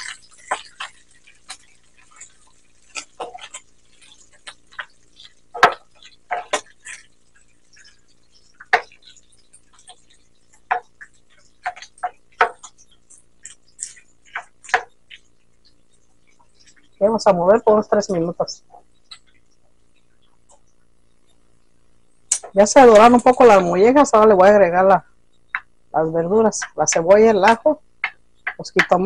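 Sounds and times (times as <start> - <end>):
spoon scraping frying pan: 0.0 - 20.7.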